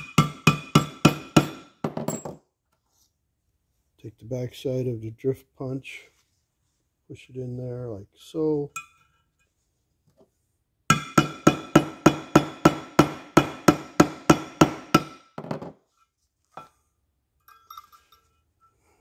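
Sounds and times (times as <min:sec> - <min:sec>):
metal parts clinking: 0:17.4 - 0:18.4.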